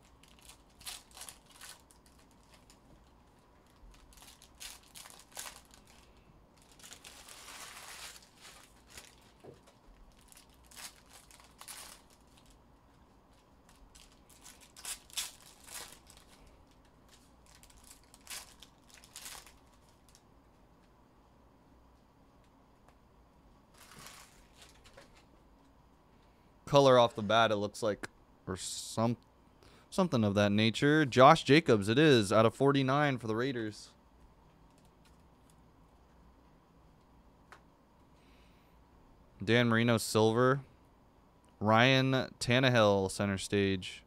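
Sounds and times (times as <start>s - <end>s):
foil wrappers tearing and crinkling: 0.0s - 12.6s, 13.6s - 20.2s, 23.7s - 25.2s.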